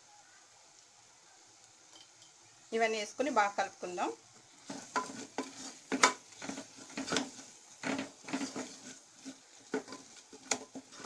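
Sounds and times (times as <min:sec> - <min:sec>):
spatula scraping a metal pot: 0:04.6 - 0:11.0.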